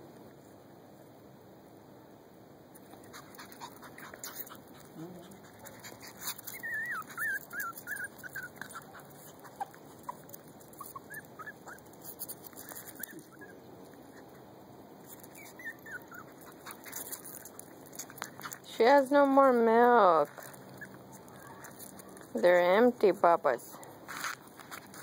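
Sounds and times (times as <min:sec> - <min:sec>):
puppies squeaking and whining: 0:02.9 - 0:14.5, 0:15.1 - 0:18.5, 0:20.4 - 0:22.4.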